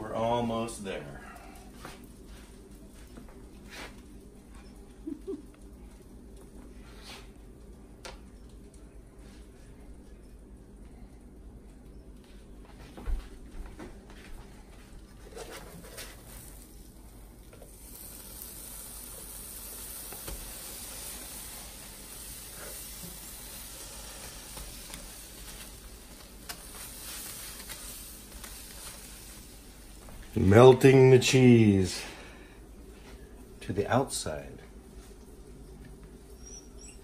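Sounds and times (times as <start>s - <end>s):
sandwiches sizzling in a frying pan: 15.8s - 32.3s.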